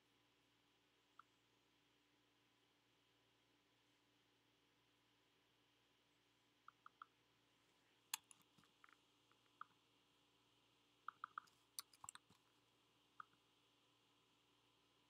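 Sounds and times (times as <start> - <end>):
mouse and keyboard clicks: 6.7 - 7.2, 8.1 - 9.8, 11.1 - 12.5, 13.2 - 13.4.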